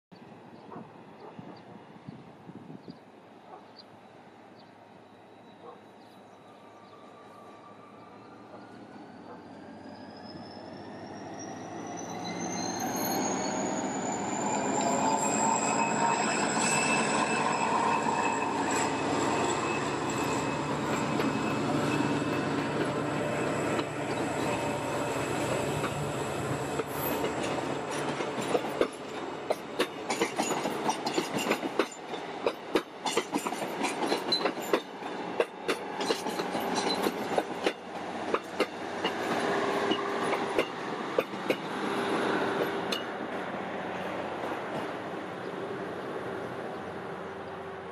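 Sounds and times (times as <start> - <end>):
passenger train passing: 0.2 - 47.9
wheels clicking over rail joints: 26.7 - 41.8.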